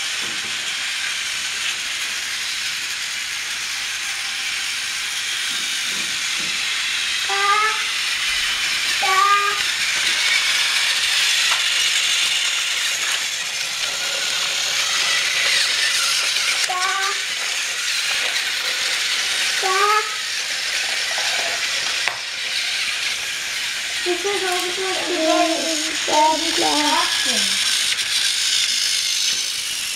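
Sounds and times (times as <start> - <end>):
toy train motor whirring: 0.0 - 29.9.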